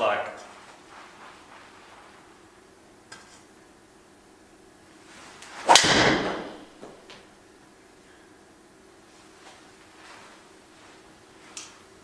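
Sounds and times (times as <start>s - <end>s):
golf driver striking ball: 5.6s - 6.7s.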